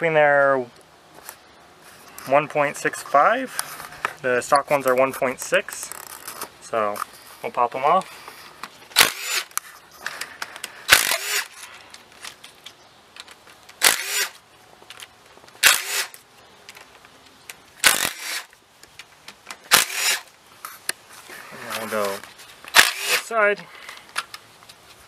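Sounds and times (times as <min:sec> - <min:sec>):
power tool running: 0:10.9 - 0:11.6, 0:13.8 - 0:14.4, 0:15.6 - 0:16.2, 0:17.8 - 0:18.5, 0:19.7 - 0:20.2, 0:22.7 - 0:23.3.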